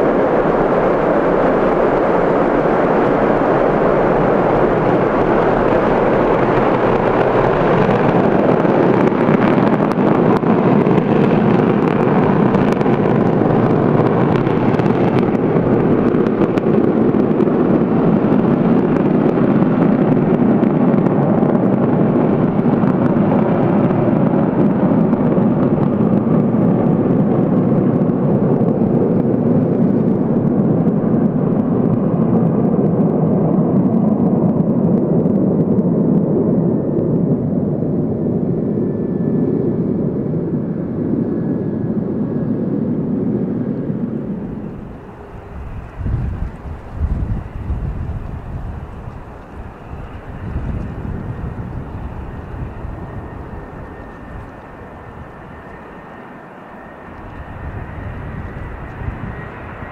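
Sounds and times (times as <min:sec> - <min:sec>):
loud jet engine noise: 0:00.0 - 0:59.9.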